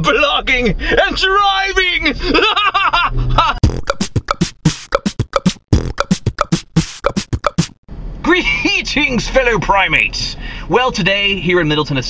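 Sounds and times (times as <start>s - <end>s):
beatbox-style percussive hits: 3.6s - 7.8s.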